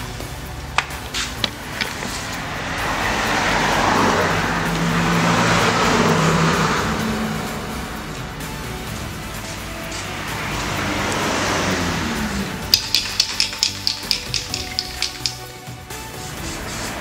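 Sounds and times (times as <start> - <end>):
car passing: 0.0 - 17.0
footsteps in sandals: 0.8 - 2.3.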